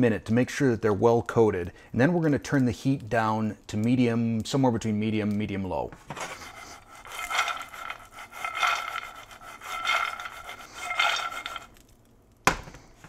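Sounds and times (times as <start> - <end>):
almonds rattling in a frying pan: 6.2 - 12.0.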